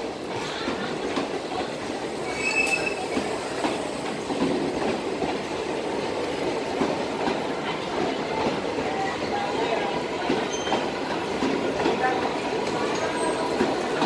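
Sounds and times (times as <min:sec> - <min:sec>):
train wheels on rails: 0:00.0 - 0:14.0
high wheel squeal: 0:02.2 - 0:03.4.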